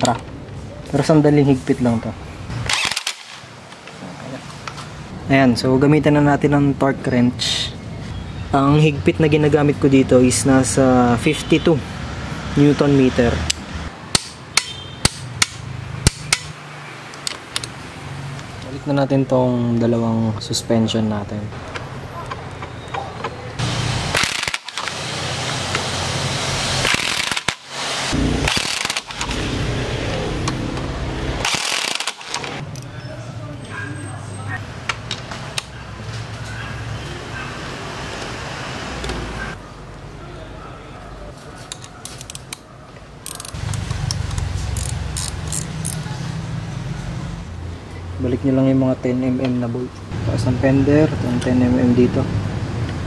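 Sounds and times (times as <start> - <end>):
impact wrench hammering: 13.5 - 16.6
ratchet wrench clicking: 13.5 - 16.6, 24.1 - 24.9, 26.8 - 27.6, 28.5 - 29.3, 31.4 - 32.5, 41.8 - 42.6, 43.2 - 46.1.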